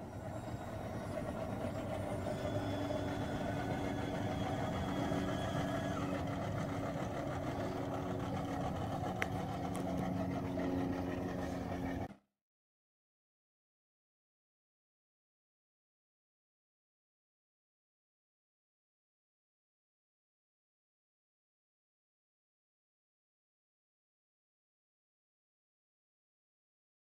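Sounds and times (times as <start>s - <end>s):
engine-like rumbling drone: 0.0s - 12.3s.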